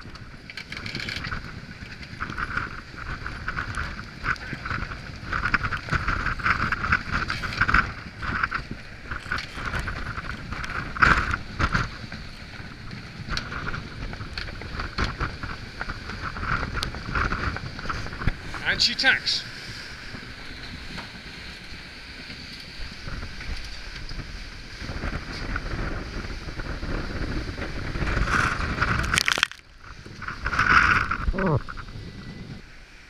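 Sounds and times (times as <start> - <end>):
wind buffeting microphone: 0.0 - 32.8
water rushing and hissing: 17.8 - 22.1.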